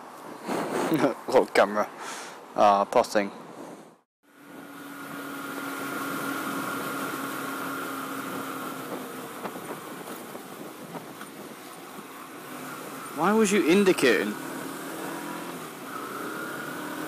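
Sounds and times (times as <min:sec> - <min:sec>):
wind noise: 0:00.0 - 0:01.3, 0:03.3 - 0:14.1
road noise: 0:00.0 - 0:17.0
motorcycle engine running: 0:04.3 - 0:17.0.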